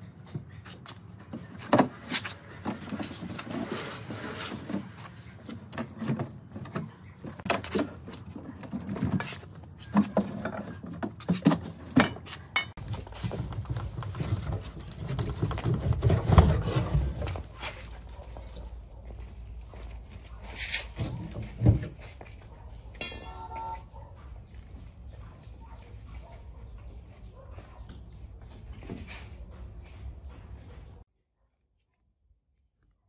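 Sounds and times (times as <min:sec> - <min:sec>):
wooden crate scraping on concrete: 0:01.6 - 0:06.8, 0:12.8 - 0:18.0.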